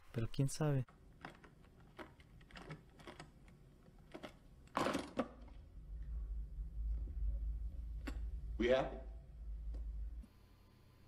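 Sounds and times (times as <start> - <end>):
low hum: 5.3 - 11.0.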